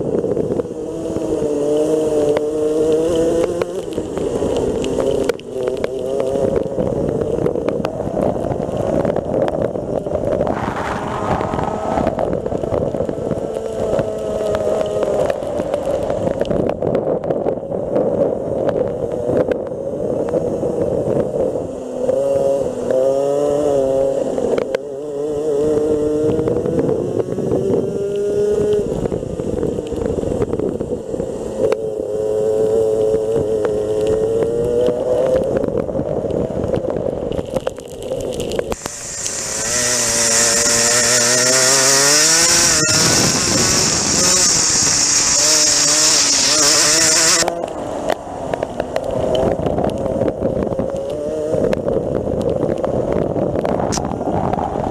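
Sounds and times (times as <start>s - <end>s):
wind and spray rush: 0.0s - 54.9s
kart engine revving: 0.7s - 7.3s, 10.4s - 12.5s, 21.8s - 28.9s, 38.8s - 48.6s.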